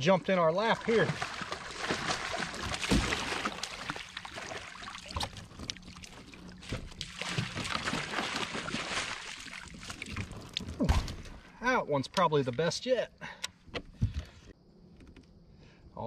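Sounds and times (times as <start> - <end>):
water splashing and dripping: 0.0 - 11.4.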